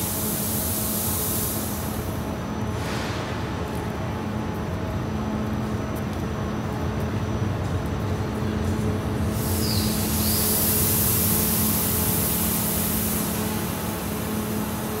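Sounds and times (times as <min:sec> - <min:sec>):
compressed air hissing: 0:00.0 - 0:02.2, 0:09.3 - 0:15.0
train humming: 0:00.0 - 0:15.0.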